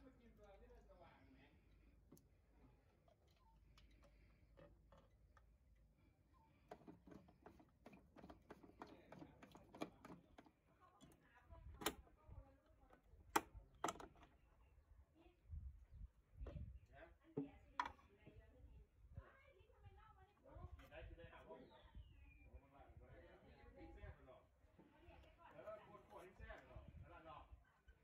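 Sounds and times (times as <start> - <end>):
small plastic clicks of knob: 6.7 - 11.2, 13.3 - 14.3.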